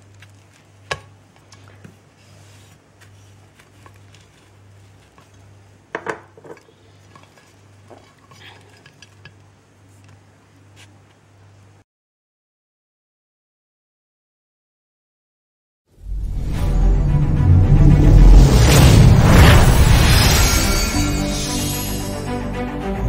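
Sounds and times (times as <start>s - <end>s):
low hum: 16.0s - 23.0s.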